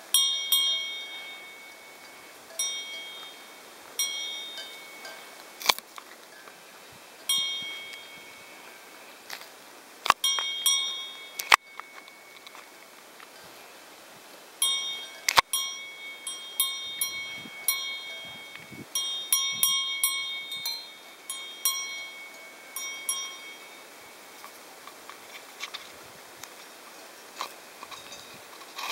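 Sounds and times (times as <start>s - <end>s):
cowbell clanking: 0.1s - 5.4s, 7.2s - 8.9s, 10.2s - 12.5s, 14.6s - 24.2s.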